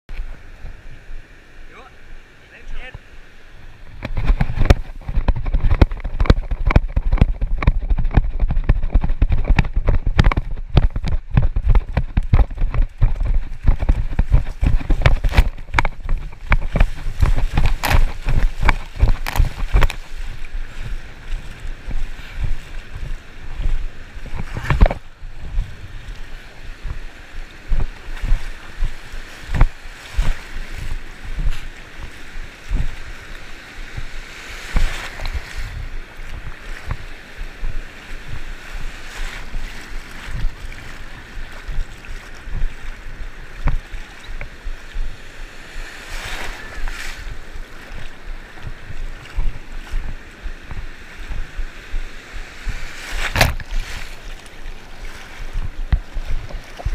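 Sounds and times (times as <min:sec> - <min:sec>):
water sloshing and splashing: 0:03.6 - 0:56.9
dull thumps and rumbles: 0:03.9 - 0:33.2, 0:42.5 - 0:45.1, 0:52.7 - 0:53.8
hiss of breaking waves: 0:14.4 - 0:56.9.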